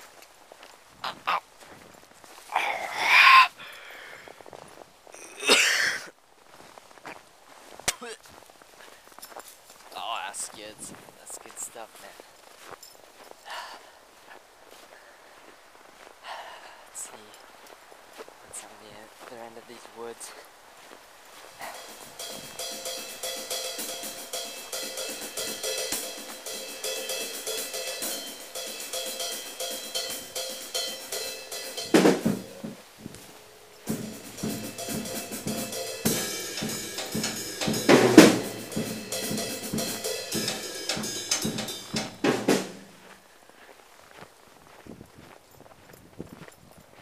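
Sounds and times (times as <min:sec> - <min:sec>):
drum kit rock beat: 0:21.6 - 0:43.2.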